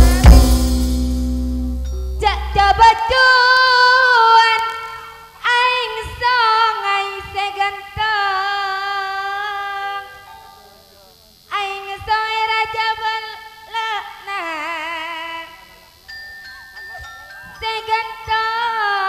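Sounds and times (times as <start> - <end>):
low drum strokes: 0.0 - 2.9
gamelan low tones ringing: 0.0 - 3.0, 16.0 - 18.4
woman singing with vibrato: 2.2 - 10.3, 11.5 - 15.8, 17.5 - 19.0.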